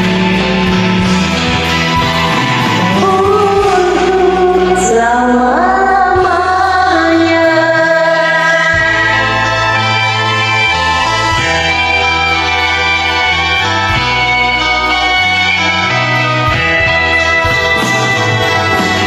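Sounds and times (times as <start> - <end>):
pop ballad backing track: 0.0 - 19.0
woman singing: 2.6 - 10.7.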